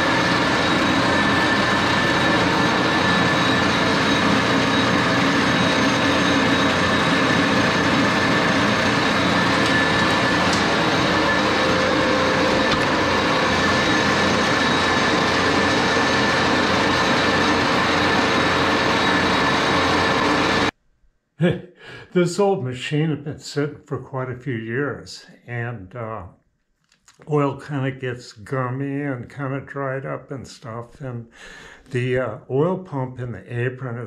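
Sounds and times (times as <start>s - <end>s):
lathe gear hum: 0.0s - 20.7s
high whine: 0.0s - 20.8s.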